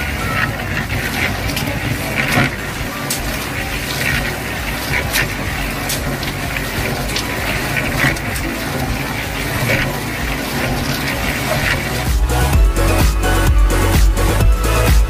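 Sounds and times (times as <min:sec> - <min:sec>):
mud slurry pouring: 0:00.0 - 0:13.0
low rumble: 0:00.0 - 0:15.0.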